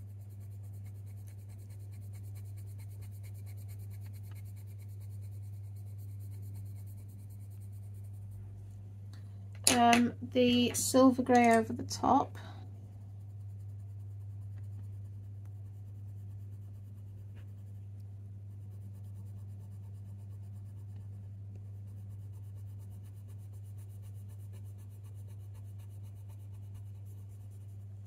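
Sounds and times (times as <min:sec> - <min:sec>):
pencil scratching on paper: 0:00.0 - 0:08.5, 0:12.4 - 0:27.9
low hum: 0:00.0 - 0:22.4.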